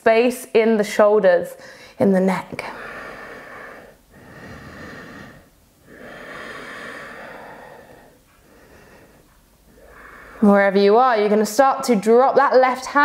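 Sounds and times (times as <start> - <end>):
woman breathing through throat: 1.6 - 2.0, 2.6 - 10.6.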